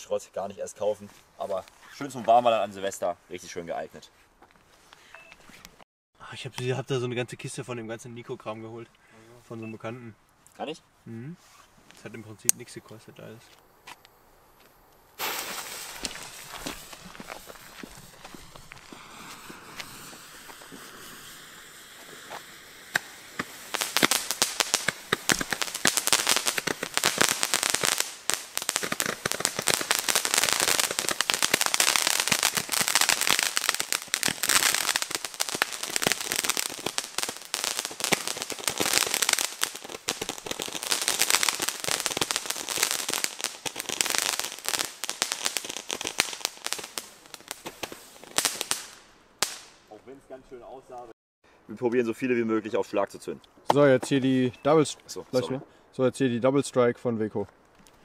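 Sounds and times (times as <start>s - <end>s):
firework crackling: 14.4s - 50.0s
firework hissing: 15.1s - 49.8s.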